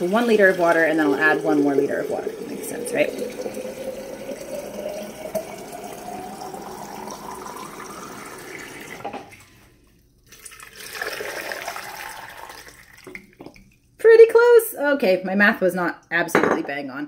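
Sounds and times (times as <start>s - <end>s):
water pouring into a vessel: 0.0s - 14.0s
liquid pouring from a glass bottle: 1.7s - 9.6s, 10.2s - 14.0s.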